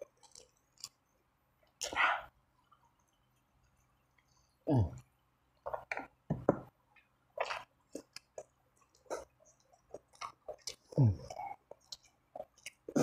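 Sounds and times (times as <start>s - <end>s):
person chewing wetly: 0.0s - 2.0s, 7.4s - 13.0s.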